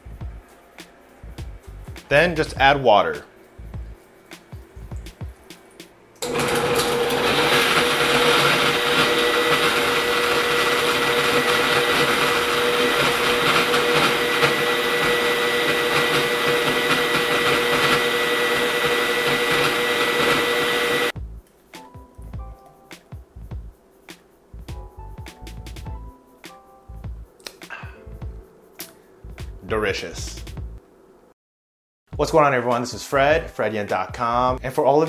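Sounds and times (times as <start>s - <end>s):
blender motor whine: 6.2s - 21.2s.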